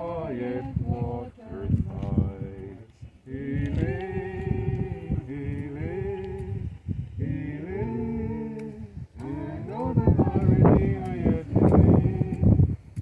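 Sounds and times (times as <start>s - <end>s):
person singing unaccompanied: 0.0s - 12.8s.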